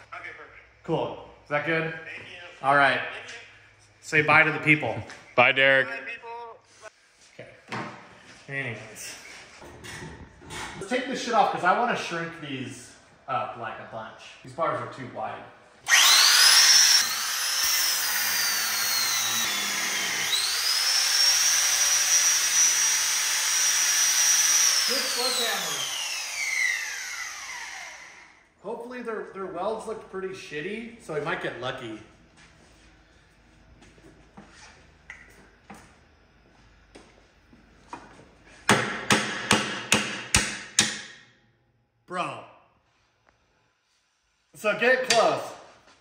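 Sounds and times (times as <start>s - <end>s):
angle grinder cutting metal: 15.9s - 28.3s.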